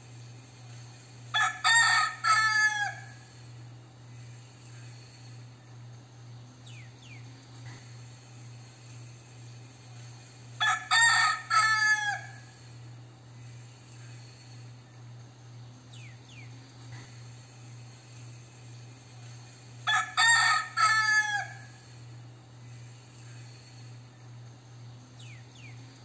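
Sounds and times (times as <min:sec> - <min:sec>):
rooster crowing: 0:01.3 - 0:03.4, 0:10.6 - 0:12.7, 0:19.8 - 0:22.0.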